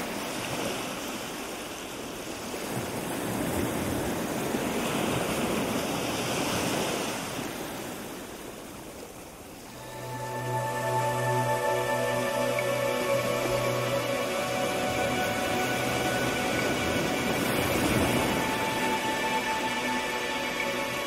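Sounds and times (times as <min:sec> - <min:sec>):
music: 0:09.8 - 0:21.0.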